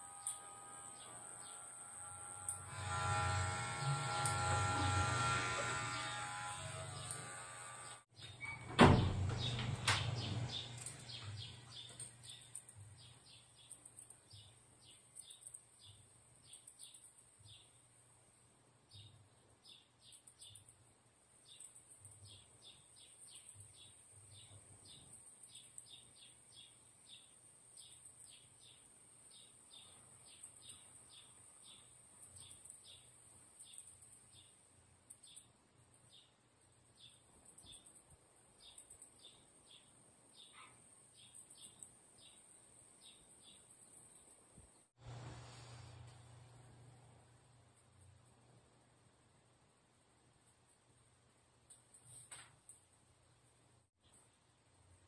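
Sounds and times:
scissors snipping hair: 0.0 - 8.0
electric hair clipper humming: 0.0 - 8.1.

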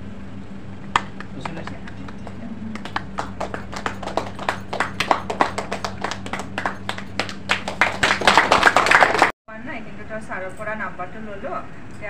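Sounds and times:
low hum: 0.0 - 9.3
audience clapping: 0.9 - 9.3.

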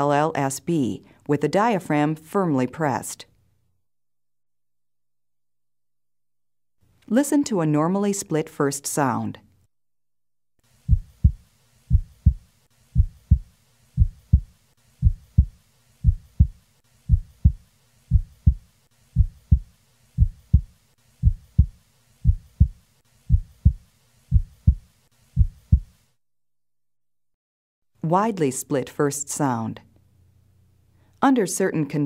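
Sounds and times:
heartbeat lub-dub: 10.9 - 26.0.

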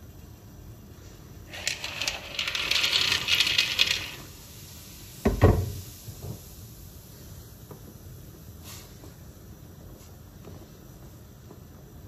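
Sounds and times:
dry pasta clattering into pot: 1.5 - 4.3.

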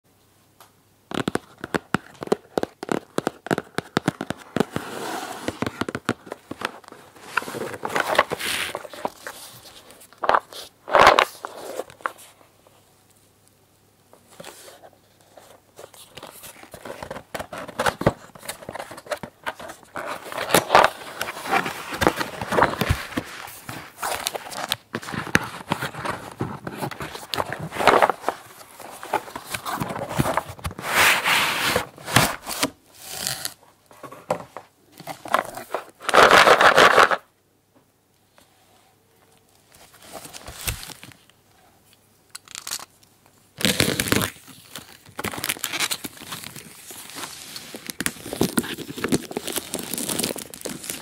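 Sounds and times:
fingers tapping and scratching cardboard: 1.1 - 4.7.

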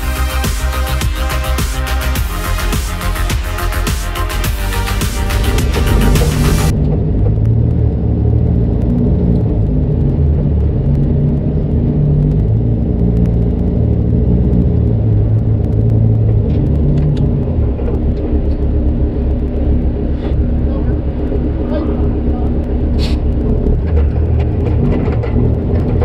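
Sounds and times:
diesel truck exhaust rumble: 0.0 - 26.0.

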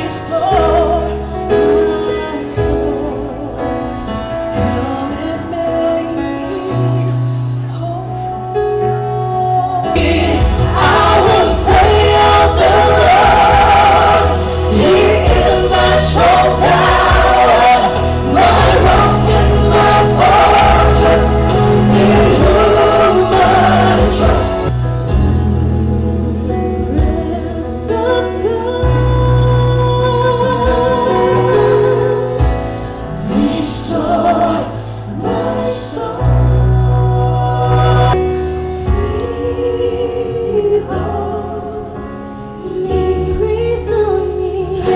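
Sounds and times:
group singing gospel: 0.0 - 7.1, 9.3 - 44.9
electronic keyboard: 0.0 - 44.9
bass notes: 9.0 - 42.3.

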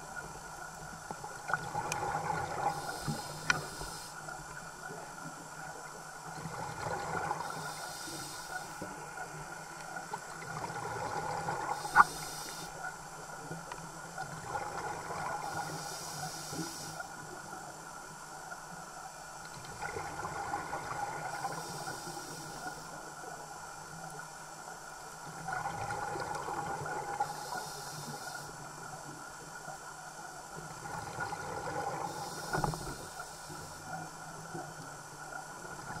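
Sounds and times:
regulator breathing hiss: 2.6 - 4.3, 7.4 - 8.9, 11.6 - 12.8, 15.3 - 17.2, 21.3 - 23.0, 27.2 - 28.7, 32.0 - 34.0.

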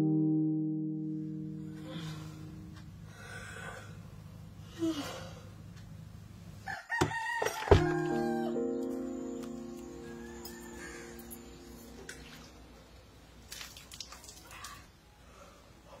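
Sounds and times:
guitar chords strummed: 0.0 - 3.0, 7.8 - 12.8
rooster crowing: 6.6 - 8.6, 9.9 - 11.7.

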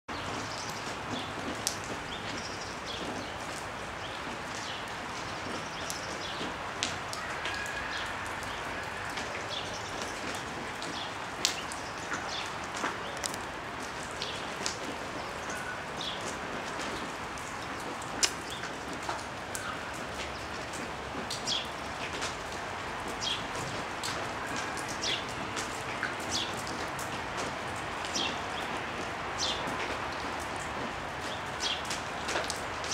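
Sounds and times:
steady rain falling: 0.1 - 32.9
sparrows chirping: 28.1 - 28.7, 29.4 - 29.6, 31.3 - 31.9.

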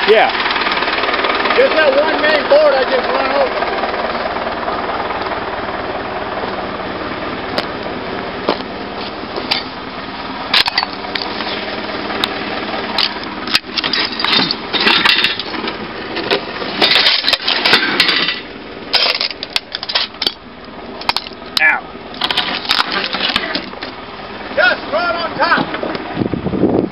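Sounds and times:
tractor engine running: 0.0 - 26.9
boards and debris clattering: 10.5 - 11.7, 12.9 - 20.4, 21.0 - 21.4, 22.2 - 24.0.

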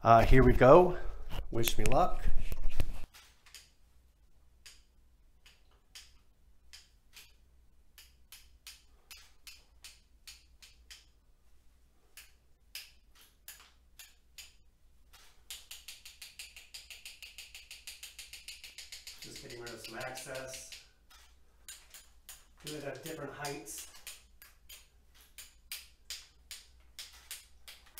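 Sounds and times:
paintbrush tapping against brush: 15.5 - 24.8.

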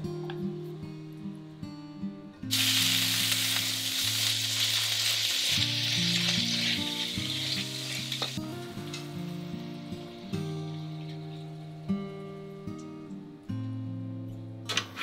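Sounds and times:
vegetables sizzling in a pan: 2.5 - 11.2.

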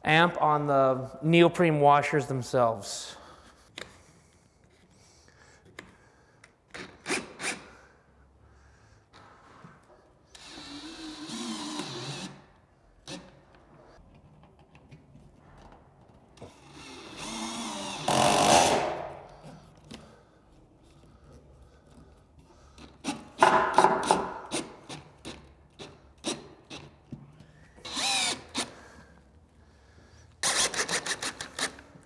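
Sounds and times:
cordless drill driving screws: 10.3 - 12.4, 16.5 - 18.9, 27.8 - 28.7, 30.4 - 31.8.

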